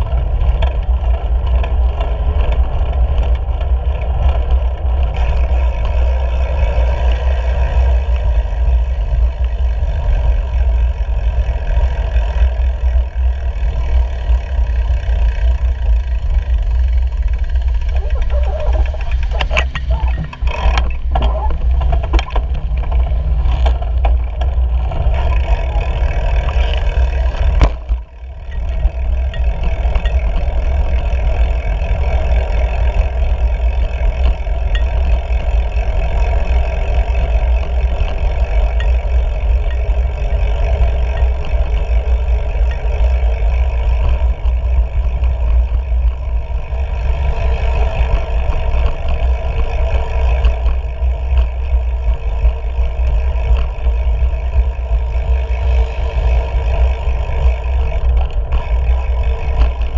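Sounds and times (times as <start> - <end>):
bicycle tyres rolling on pavement: 0.0 - 59.9
wind buffeting: 16.0 - 34.6.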